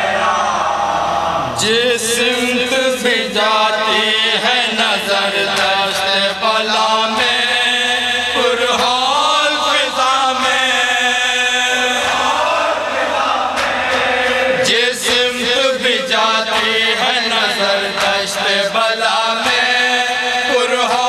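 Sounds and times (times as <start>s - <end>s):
men chanting a lament in chorus: 0.0s - 21.0s.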